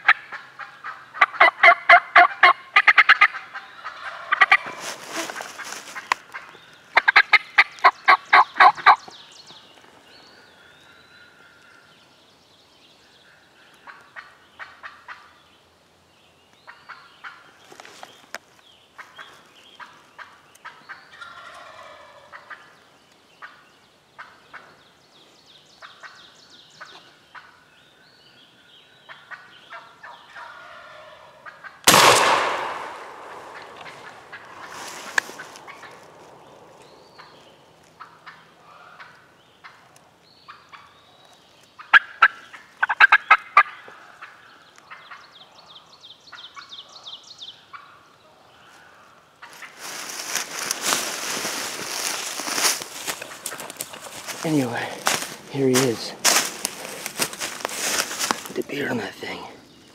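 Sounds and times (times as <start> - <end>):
turkey gobbling: 0.0 - 6.1, 7.0 - 9.0, 20.2 - 22.7, 29.1 - 36.0, 41.8 - 45.2
shotgun shot with echo: 31.9 - 33.9.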